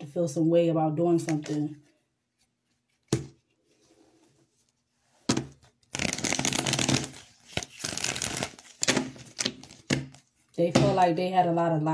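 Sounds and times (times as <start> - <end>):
cards being shuffled: 5.3 - 10.4.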